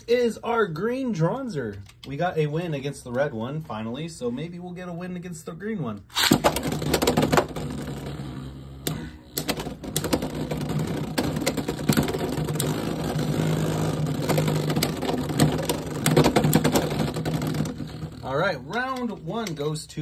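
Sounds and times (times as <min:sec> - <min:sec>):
spinning tops clashing: 0:06.1 - 0:06.7.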